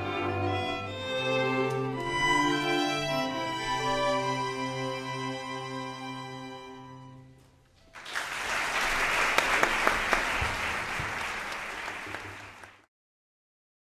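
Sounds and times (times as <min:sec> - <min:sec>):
audience applauding: 0:07.8 - 0:12.9.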